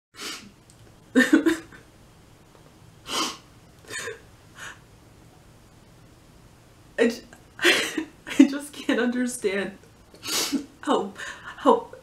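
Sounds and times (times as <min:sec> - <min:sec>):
woman sobbing and sniffling: 0:03.1 - 0:04.8, 0:07.6 - 0:08.1, 0:10.2 - 0:11.8.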